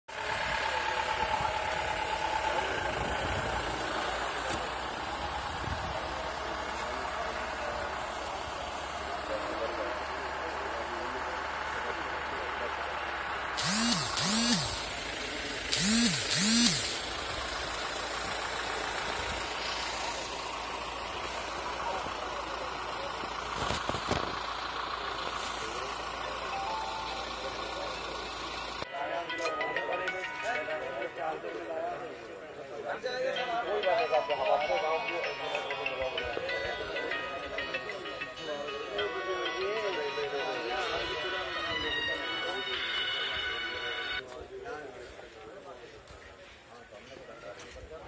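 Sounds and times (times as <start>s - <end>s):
car engine idling: 0.1s - 28.8s.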